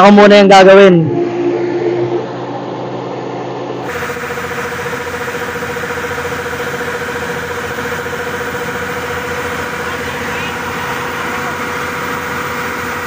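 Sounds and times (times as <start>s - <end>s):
steady hum: 3.7s - 13.0s
combine harvester running: 3.8s - 13.0s
grain discharging through auger: 3.8s - 13.0s.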